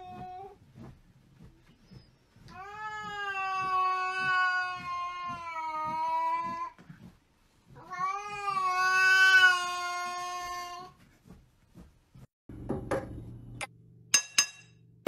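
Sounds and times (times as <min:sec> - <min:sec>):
cat yowling: 0:07.8 - 0:10.9.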